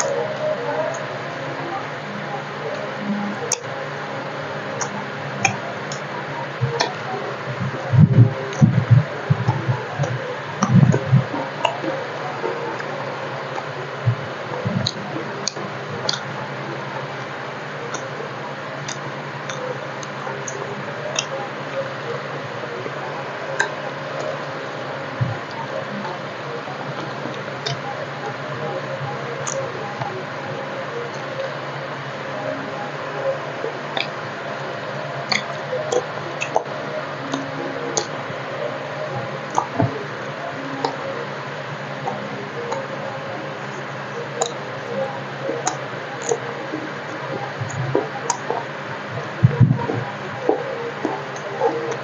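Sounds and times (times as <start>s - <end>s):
steady background hum: 0.0s - 52.0s
wet chewing and lip-smacking: 4.8s - 28.4s, 29.4s - 30.1s, 33.8s - 43.0s, 43.6s - 44.9s, 45.6s - 52.0s.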